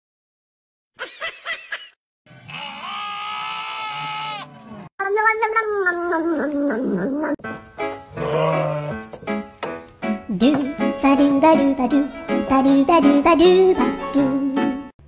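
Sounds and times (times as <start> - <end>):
goat kid bleating: 2.4 - 4.6, 8.2 - 9.1
lambs bleating: 2.4 - 4.6, 8.2 - 9.2.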